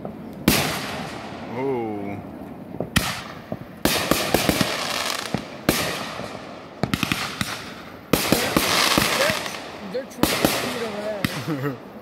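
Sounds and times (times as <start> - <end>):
firework hiss: 0.0 - 11.6
fireworks bangs: 0.0 - 12.0
crackling pops: 2.4 - 11.6.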